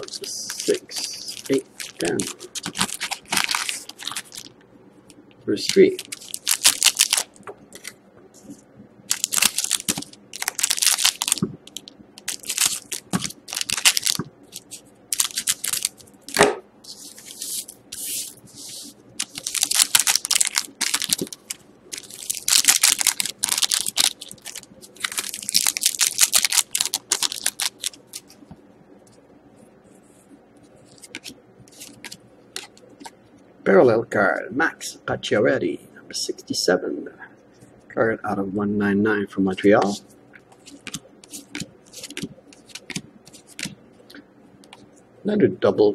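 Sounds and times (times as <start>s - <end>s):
foil packs tearing and crinkling: 0.0s - 4.5s, 5.7s - 7.3s, 9.1s - 16.0s, 19.2s - 28.2s.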